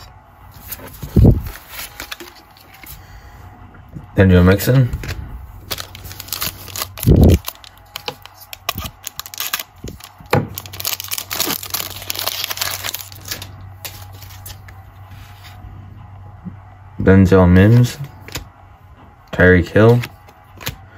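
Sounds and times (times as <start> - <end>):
foil pack crinkling: 0.6 - 3.0, 5.6 - 14.7.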